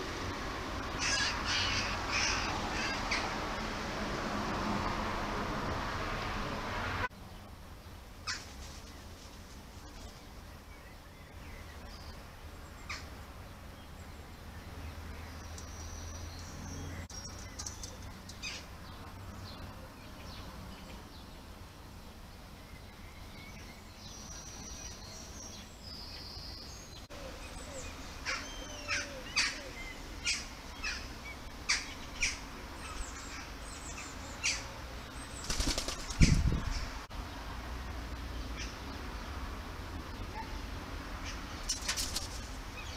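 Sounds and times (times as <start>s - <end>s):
bird wings flapping: 8.3s - 10.2s, 35.3s - 36.7s, 41.7s - 42.6s.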